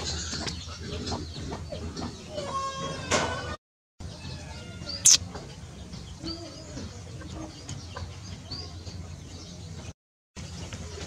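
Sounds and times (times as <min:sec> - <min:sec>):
birds chirping: 0:04.8 - 0:09.9.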